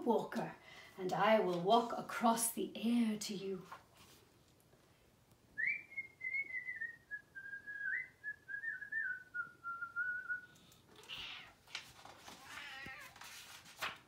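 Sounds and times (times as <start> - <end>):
person whistling: 5.6 - 10.5
book page rustling: 11.6 - 14.0.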